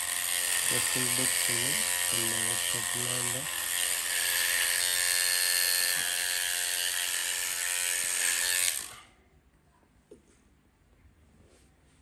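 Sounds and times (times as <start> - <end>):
electric hair machine buzzing: 0.0 - 9.1.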